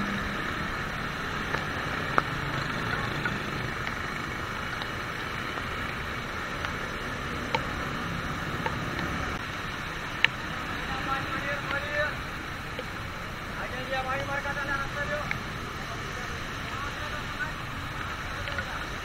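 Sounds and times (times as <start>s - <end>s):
low engine hum: 0.0s - 19.0s
rain and tyre spray hiss: 0.0s - 19.0s
raindrops ticking on camera: 0.0s - 19.0s.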